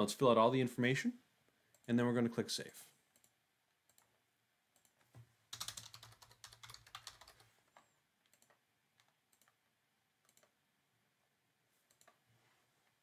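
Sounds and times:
faint keyboard typing: 0:03.1 - 0:04.2, 0:04.8 - 0:10.6, 0:11.8 - 0:12.2.

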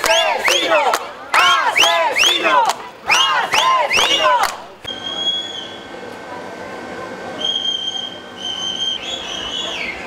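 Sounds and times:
crowd shouting a chant: 0:00.0 - 0:04.8.

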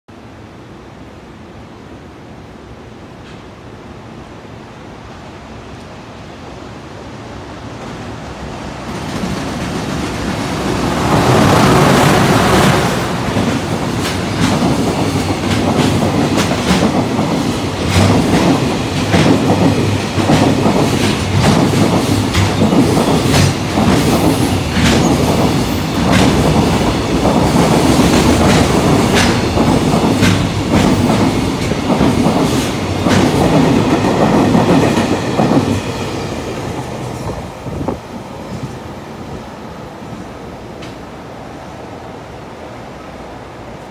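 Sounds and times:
electric locomotive passing: 0:00.7 - 0:43.9
wheels clacking over rail joints: 0:11.8 - 0:37.4.

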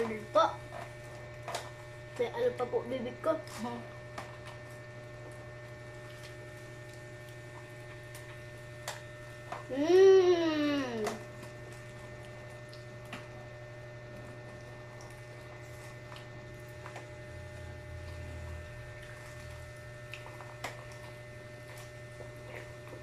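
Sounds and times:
low hum: 0:00.0 - 0:23.0
child humming mm: 0:09.7 - 0:11.3
children chewing wetly: 0:11.0 - 0:17.2, 0:18.1 - 0:23.0.

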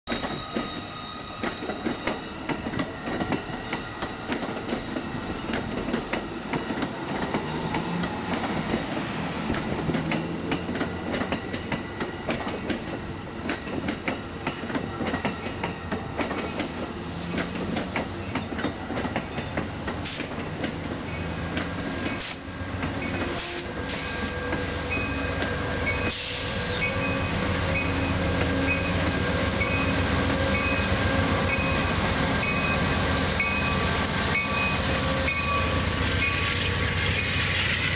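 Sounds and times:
diesel locomotive engine hum: 0:00.1 - 0:37.9
train wheels clicking over rail joints: 0:01.4 - 0:27.2.

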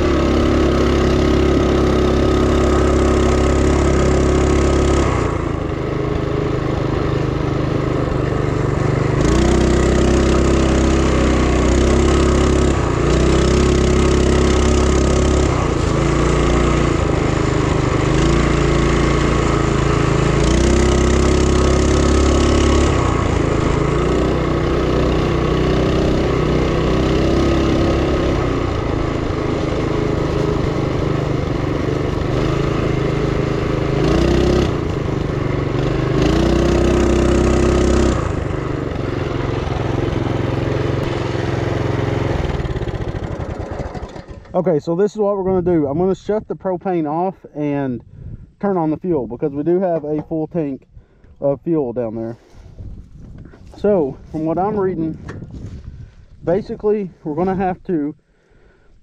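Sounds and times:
mini bike engine revving: 0:00.0 - 0:44.7.

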